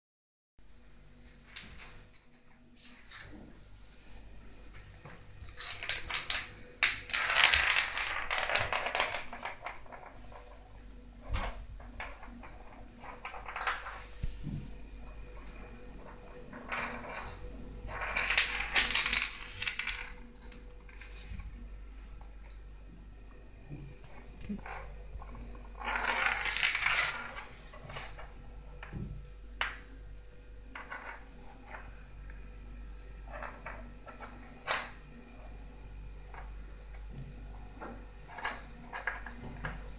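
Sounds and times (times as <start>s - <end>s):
walnut skittering on tile floor: 4.7s - 14.3s, 15.1s - 21.5s, 24.0s - 29.0s.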